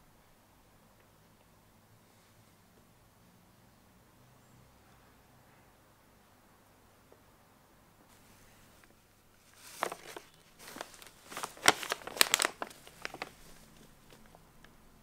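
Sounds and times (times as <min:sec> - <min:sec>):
paper bag crinkling: 0:09.4 - 0:14.4.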